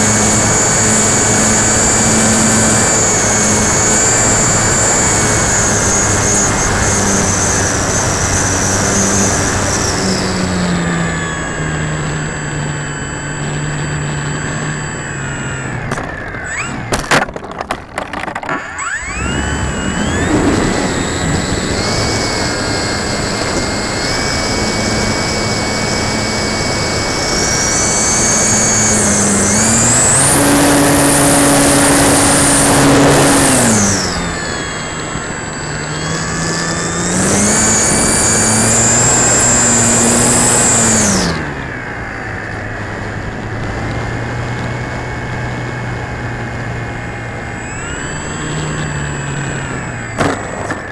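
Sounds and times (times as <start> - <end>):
model plane motor whine: 0.0 - 50.9
rattle of knocks: 16.9 - 18.6.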